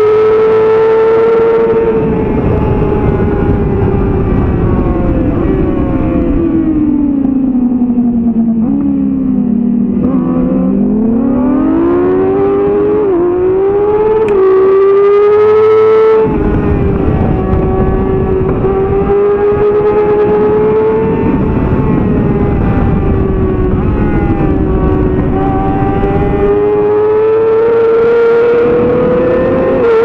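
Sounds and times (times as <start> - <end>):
motorcycle engine at race pace: 0.0 - 30.0
wind rushing over microphone: 0.0 - 30.0.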